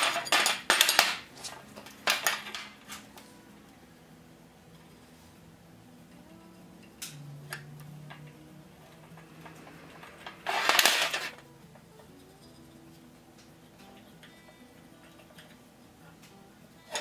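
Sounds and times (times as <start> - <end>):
metal scraping and clatter: 8.9 - 11.4.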